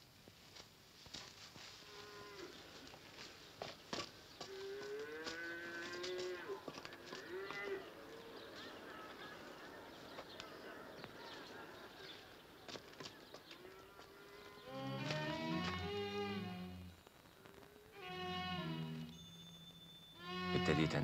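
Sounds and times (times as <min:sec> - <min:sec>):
cattle mooing: 0:13.7 - 0:16.9.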